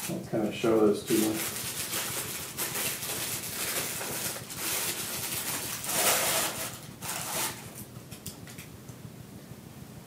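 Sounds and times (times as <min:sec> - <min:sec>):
packaging rustling and scraping: 0:00.0 - 0:07.9.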